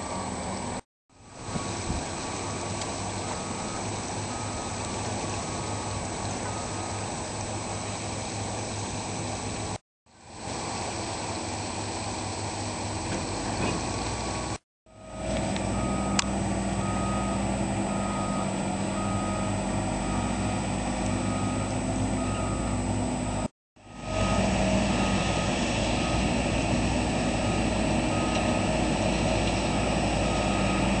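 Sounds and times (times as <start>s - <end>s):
excavator engines humming: 0.0s - 31.0s
backup alarm beeping: 3.2s - 4.8s, 14.9s - 26.4s, 29.8s - 31.0s.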